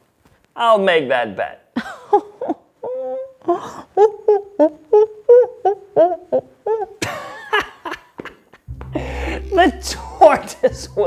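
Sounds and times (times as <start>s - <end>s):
person imitating monkey chatter: 4.0s - 7.0s.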